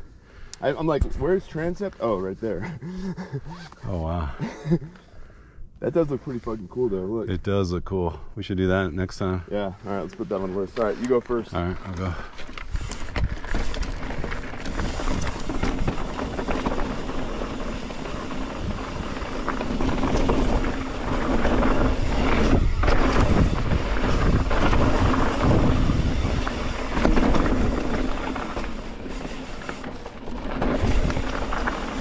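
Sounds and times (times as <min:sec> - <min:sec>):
tyres rumbling over rock: 0:11.8 - 0:32.0
wind on microphone: 0:19.9 - 0:28.2.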